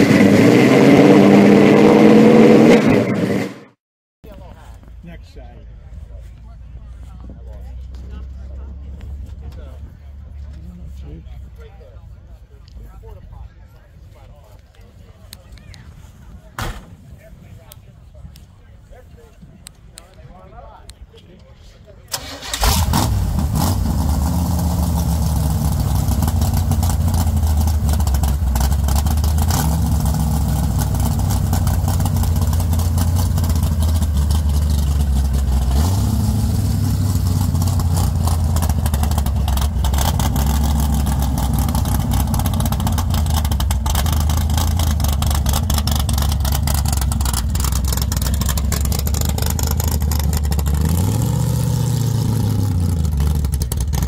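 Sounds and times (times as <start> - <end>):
car engine revving: 0.0 - 3.8, 22.2 - 54.0.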